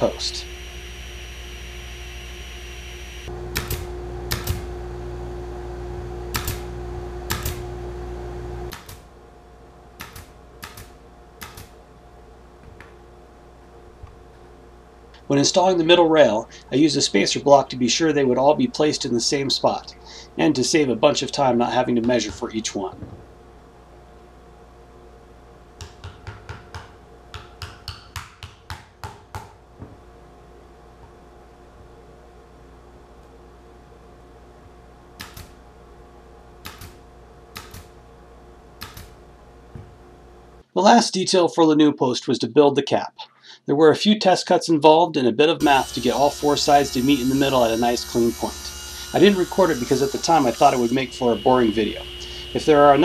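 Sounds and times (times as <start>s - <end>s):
pin nailer clicks: 3.5s - 4.6s, 6.3s - 6.7s, 7.3s - 7.6s, 10.0s - 11.7s, 35.2s - 35.5s, 36.6s - 37.0s, 37.6s - 37.9s, 38.8s - 39.2s.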